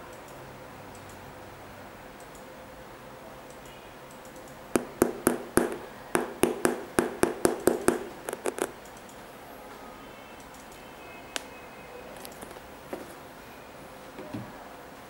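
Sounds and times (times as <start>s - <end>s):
finger tapping on shoe sole: 4.8s - 8.8s.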